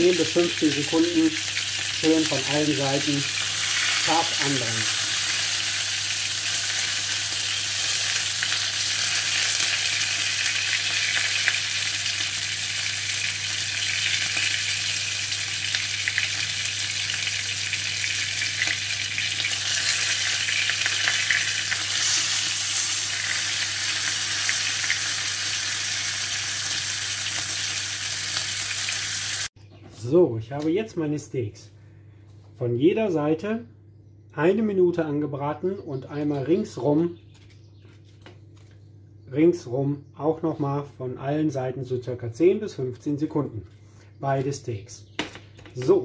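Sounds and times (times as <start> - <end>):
steaks sizzling in a frying pan: 0.0 - 29.5.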